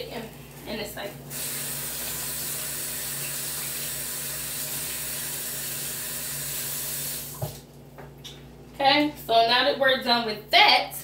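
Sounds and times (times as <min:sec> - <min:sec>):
kitchen faucet running: 0:00.1 - 0:07.6.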